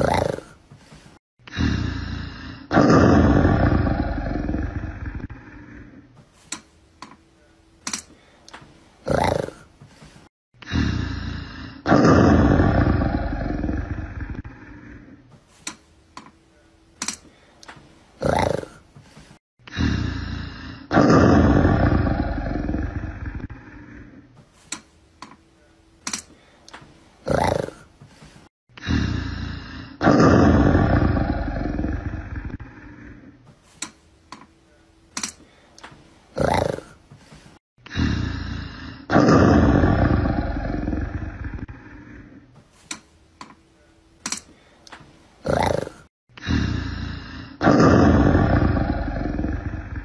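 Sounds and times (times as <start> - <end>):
big cat deep roar: 0.0 - 0.6, 1.5 - 6.0, 9.0 - 9.7, 10.6 - 15.2, 18.2 - 18.8, 19.7 - 24.2, 27.2 - 27.8, 28.8 - 33.4, 36.4 - 37.0, 37.9 - 42.4, 45.4 - 50.0
loud roar: 2.5 - 5.4, 11.7 - 14.6, 20.7 - 23.6, 30.0 - 32.7, 39.1 - 41.7.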